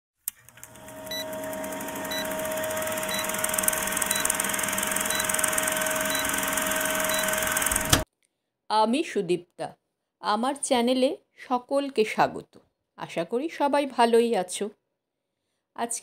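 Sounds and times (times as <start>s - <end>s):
film projector clattering: 0.3s - 8.0s.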